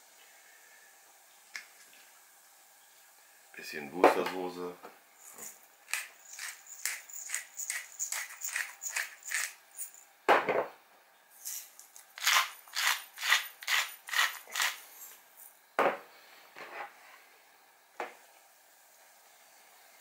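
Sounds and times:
pepper mill grinding: 5.2 - 10.1, 11.4 - 15.2
salt shaker rattling: 5.2 - 10.1, 11.4 - 15.5.

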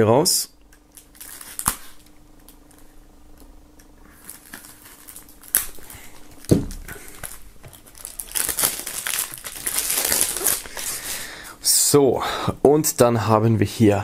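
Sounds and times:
plastic film crinkling: 0.9 - 3.5, 4.1 - 11.2
plastic film scratching: 1.0 - 2.8, 4.2 - 6.5, 7.1 - 11.2.

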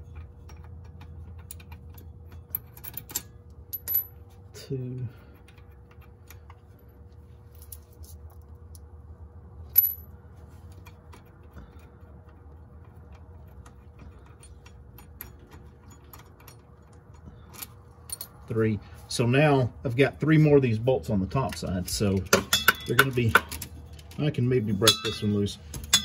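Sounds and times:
ringing metal clink: 22.4 - 23.2, 24.8 - 26.0.

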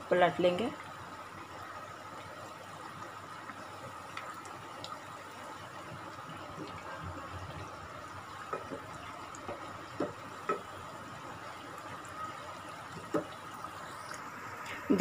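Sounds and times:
oil sizzling in pan: 0.0 - 15.0
wooden spatula tapping: 8.5 - 10.7.

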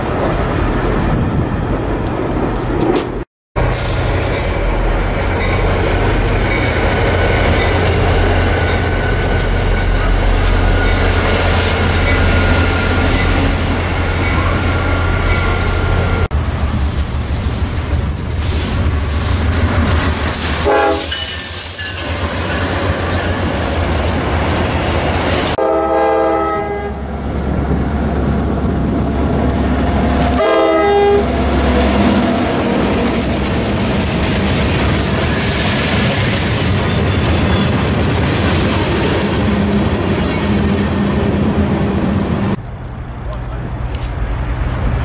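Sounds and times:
locomotive engine rumble: 0.1 - 20.9
train horn blasts: 20.6 - 21.4, 25.6 - 27.1, 30.3 - 31.4.

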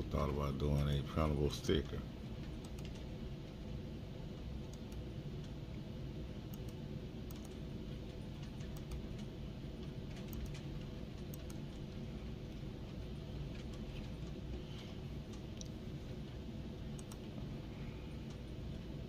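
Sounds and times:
steady low hum: 0.0 - 19.0
mouse and keyboard clicks: 6.5 - 7.6, 10.1 - 11.6, 17.0 - 17.3.

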